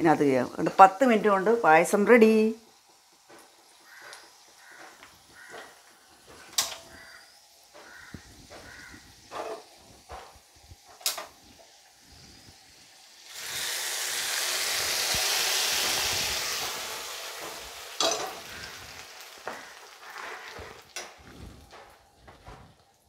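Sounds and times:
hot ghee hissing in milk: 0.2s - 22.3s.

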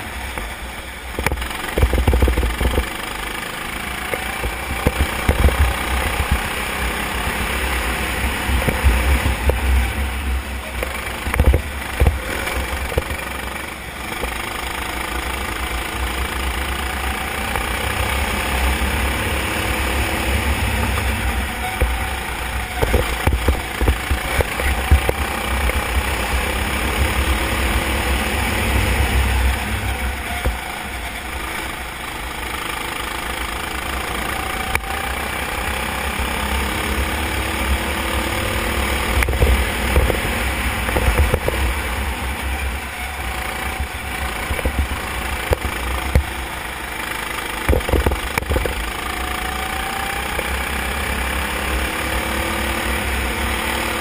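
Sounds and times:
go-kart engine racing: 0.0s - 54.0s
sharp knocks: 47.6s - 48.8s.

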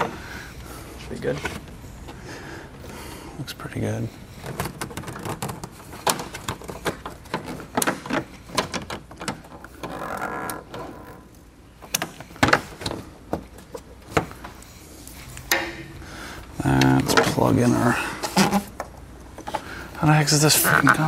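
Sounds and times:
plastic scraping: 4.3s - 11.3s.

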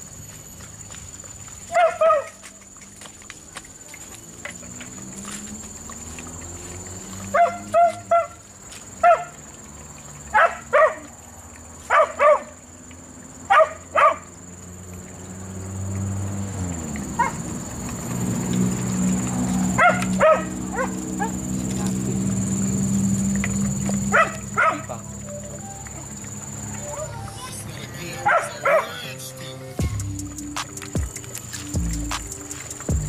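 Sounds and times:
dog barking: 1.7s - 2.4s, 7.3s - 8.4s, 9.0s - 9.4s, 10.3s - 11.1s, 11.9s - 12.6s, 13.5s - 14.3s, 17.2s - 17.4s, 19.8s - 21.4s, 24.1s - 25.0s, 28.2s - 29.0s.

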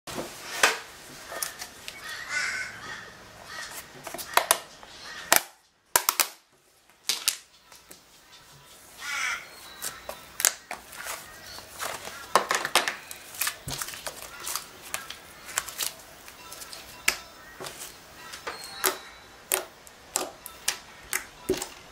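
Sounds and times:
slime squelching: 9.2s - 21.9s.

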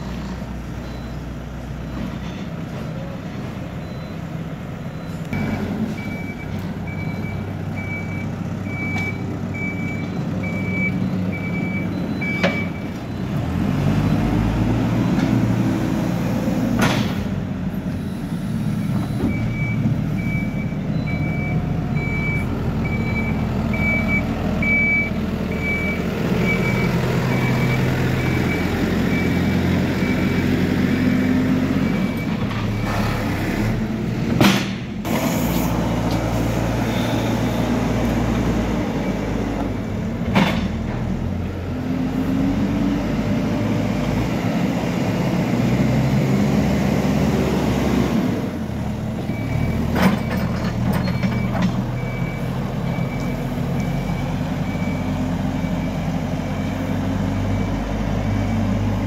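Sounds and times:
diesel engine running: 0.0s - 59.0s
reversing alarm beeps: 0.8s - 2.5s, 3.7s - 4.3s, 4.9s - 13.4s, 18.8s - 30.4s, 31.8s - 33.1s, 36.8s - 37.8s, 49.2s - 59.0s.

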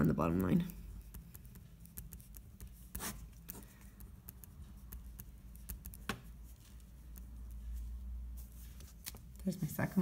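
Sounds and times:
pen scratching and tapping: 0.0s - 7.8s
low steady hum: 0.0s - 10.0s.

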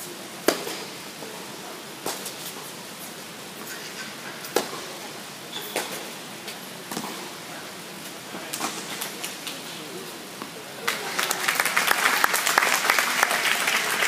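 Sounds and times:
tennis ball struck by rackets: 0.4s - 0.9s, 4.5s - 4.9s, 6.9s - 7.3s.

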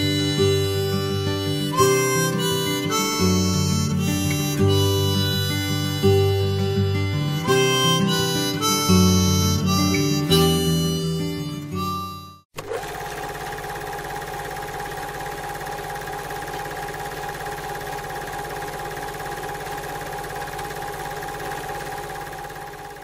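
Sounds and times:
steady machine hum: 12.6s - 23.0s.

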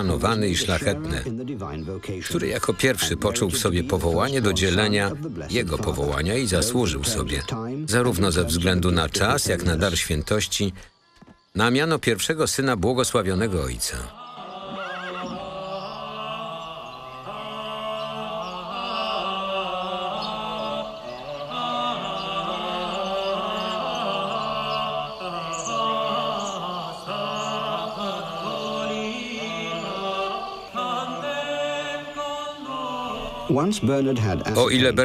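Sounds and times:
slow chant-like singing: 14.1s - 34.8s.

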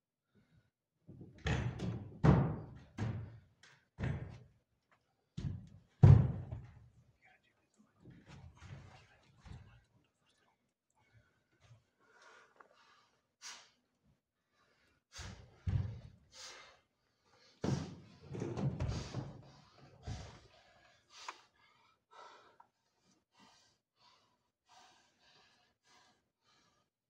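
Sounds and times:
person breathing heavily and gasping: 14.5s - 26.9s.

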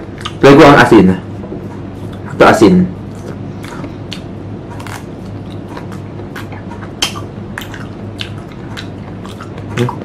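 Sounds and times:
steady low hum: 0.0s - 10.0s
crunchy chewing: 3.0s - 10.0s.

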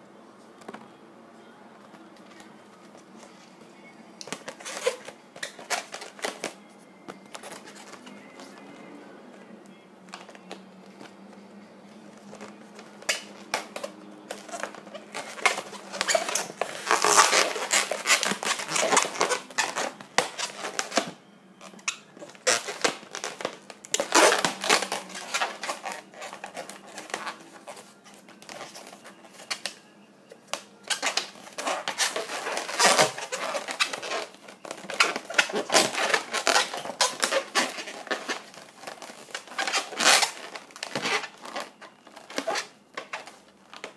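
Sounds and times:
latex balloons rubbing and squeaking: 4.2s - 6.6s, 7.2s - 8.9s, 12.2s - 29.8s, 30.8s - 43.9s.

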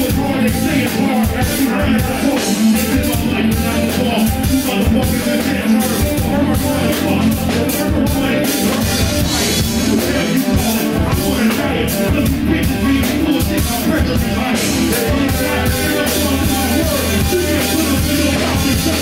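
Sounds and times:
live rock hip-hop band: 0.0s - 19.0s
vocalist on microphone: 0.0s - 19.0s.

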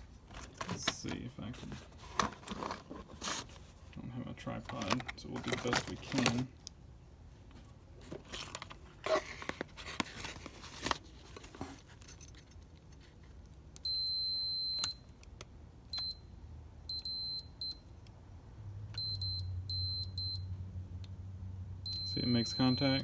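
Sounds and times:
clicks and rustling of wires: 0.2s - 6.8s, 7.5s - 13.9s
multimeter beeping: 13.8s - 15.1s, 16.9s - 17.9s, 19.0s - 20.4s, 21.9s - 23.0s.

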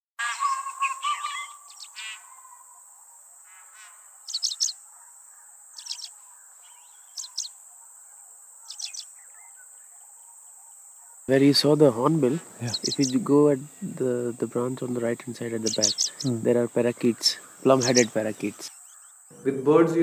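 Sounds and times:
birds calling: 0.2s - 20.0s
high-pitched insect drone: 5.8s - 7.8s, 8.6s - 10.3s, 11.5s - 19.5s.

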